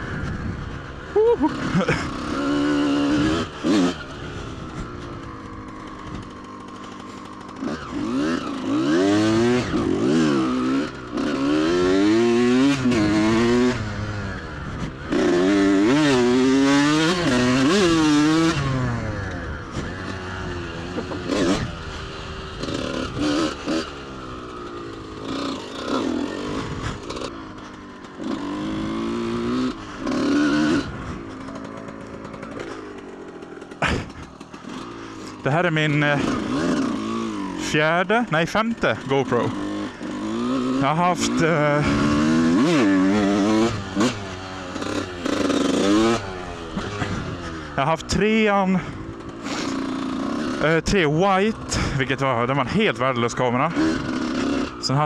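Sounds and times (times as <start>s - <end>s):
two-stroke motorcycle engine revving: 0.0s - 55.0s.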